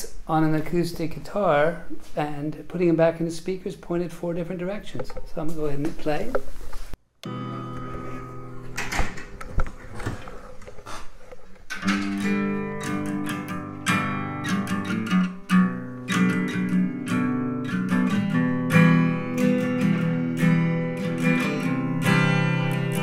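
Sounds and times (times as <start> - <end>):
acoustic guitar chords: 7.2 - 10.0, 11.7 - 23.0.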